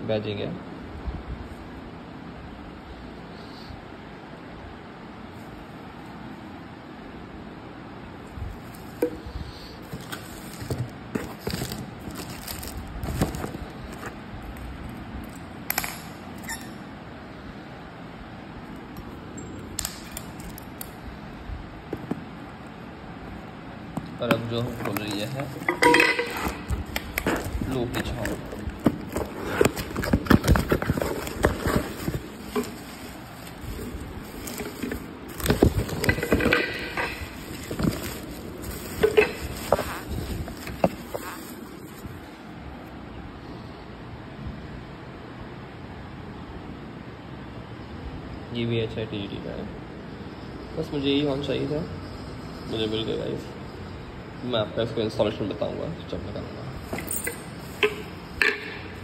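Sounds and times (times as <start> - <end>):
cardboard box and bubble wrap crinkling: 8.6 - 14.2, 24.2 - 42.3.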